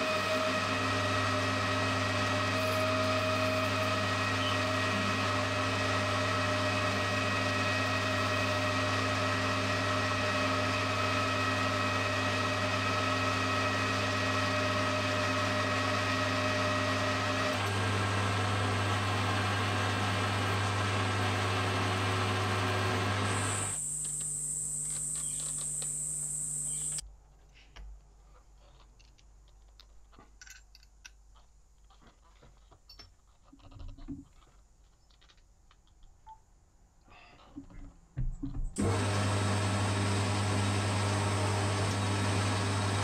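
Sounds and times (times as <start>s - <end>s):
lathe tool cutting metal: 0.0s - 27.0s, 38.8s - 43.0s
metal lathe motor humming: 0.0s - 27.0s, 38.8s - 43.0s
high-pitched machine whine: 22.8s - 27.0s.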